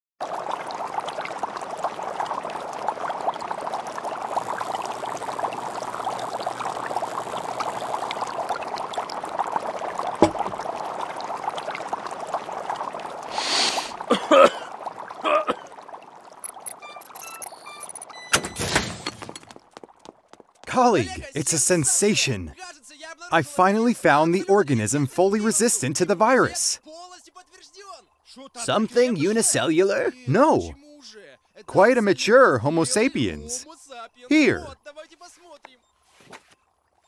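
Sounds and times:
liquid pouring in glassware: 0.3s - 18.2s
knocks: 10.2s - 10.6s.

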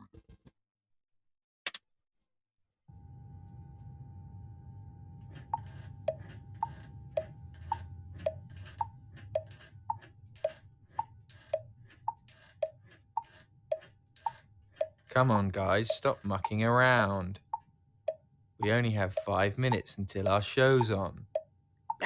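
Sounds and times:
low steady hum: 2.9s - 22.0s
clock ticking: 5.5s - 22.0s.

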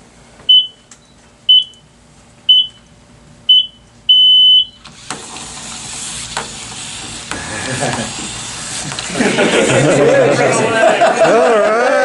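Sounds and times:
electronic countdown beeps: 0.5s - 0.8s, 1.5s - 1.8s, 2.5s - 2.8s, 3.5s - 4.8s.

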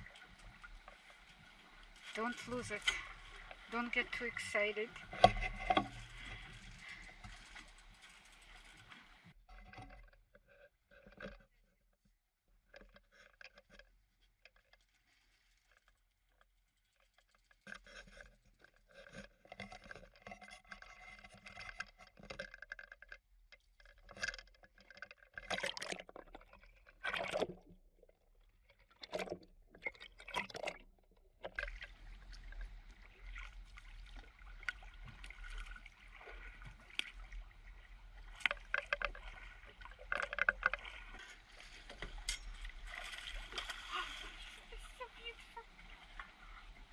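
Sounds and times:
rush of water: 0.0s - 9.3s, 31.5s - 46.9s
water splashes: 0.0s - 9.4s, 23.8s - 46.9s
water gurgling and sloshing: 0.0s - 46.9s.

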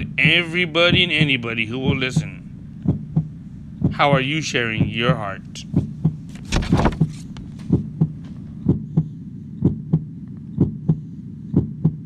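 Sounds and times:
low steady hum: 0.0s - 9.0s
heartbeat thumps: 0.0s - 11.0s.

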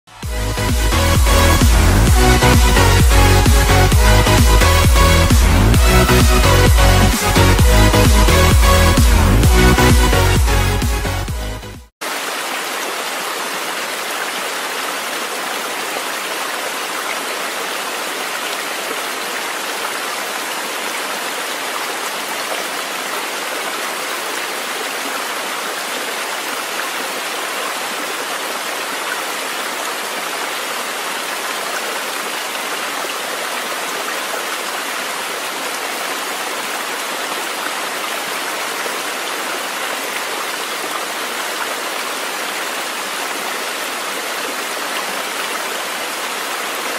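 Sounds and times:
stream running: 12.0s - 46.9s.

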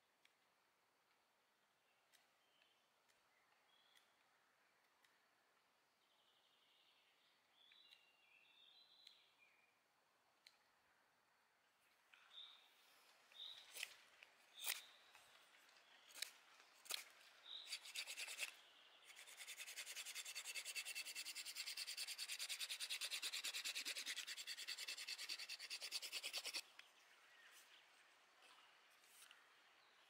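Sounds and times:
knife cutting wooden stick: 13.7s - 15.0s, 16.0s - 26.7s
knife blade scraping wood: 14.5s - 15.0s, 16.1s - 26.6s.

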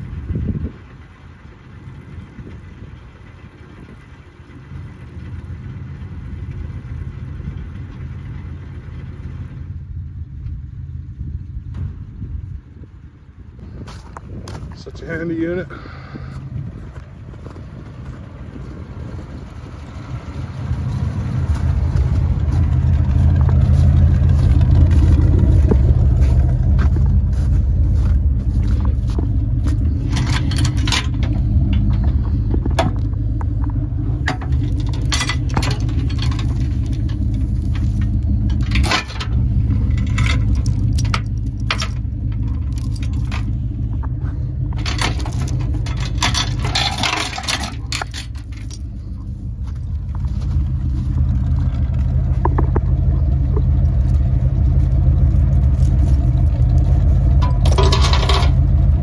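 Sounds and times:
truck engine running: 0.0s - 59.0s
sharp rattles and clinks: 23.1s - 50.4s, 53.4s - 59.0s.

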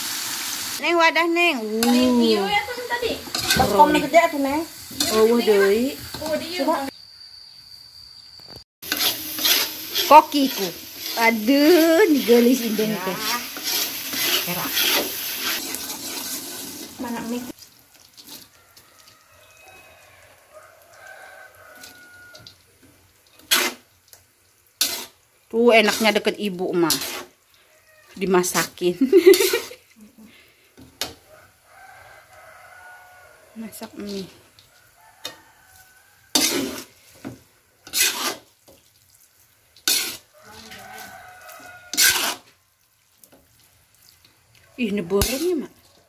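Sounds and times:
metal spatula scraping wok: 0.2s - 7.0s, 8.8s - 20.2s, 20.8s - 23.9s, 24.8s - 31.3s, 33.6s - 42.6s, 44.8s - 46.0s
rooster crowing faintly: 18.3s - 22.6s, 27.6s - 28.2s, 31.0s - 36.9s, 40.2s - 42.5s.

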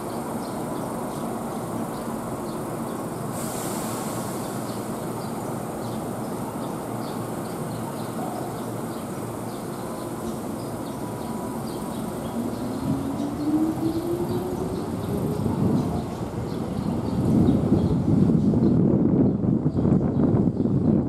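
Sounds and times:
electric train rumbling: 0.0s - 21.0s.

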